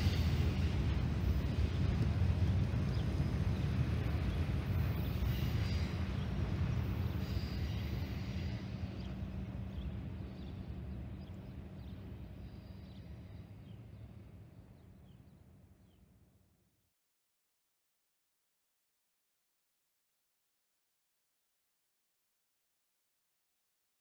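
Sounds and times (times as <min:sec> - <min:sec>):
freight train rumbling on rails: 0:00.0 - 0:16.1.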